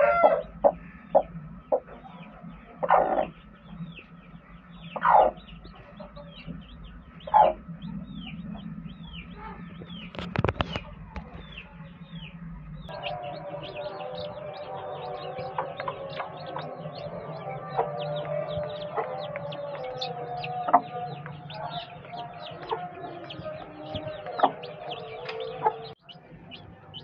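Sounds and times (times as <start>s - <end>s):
chicks peeping: 0.0s - 27.0s
music: 0.0s - 27.0s
hen clucking loudly: 4.8s - 6.5s.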